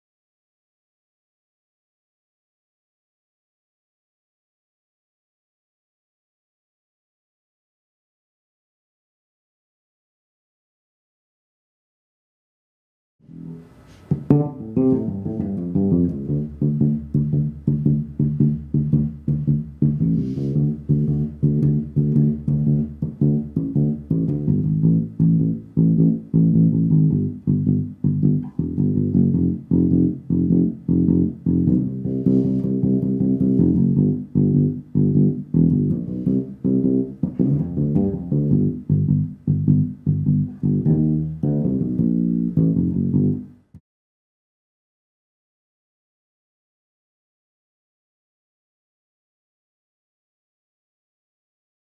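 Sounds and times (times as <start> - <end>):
electric bass guitar plucked: 13.2 - 43.8.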